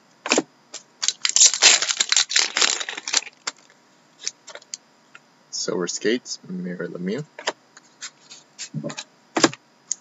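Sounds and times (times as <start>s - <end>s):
wrapper and cards crinkling: 1.0s - 4.6s.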